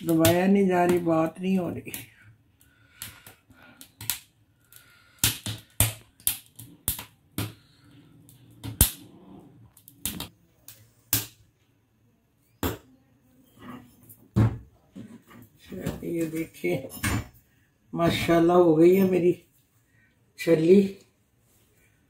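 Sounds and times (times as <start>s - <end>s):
corn kernels popping: 0.0s - 1.1s, 1.8s - 7.8s
gas burner flame: 0.0s - 11.4s.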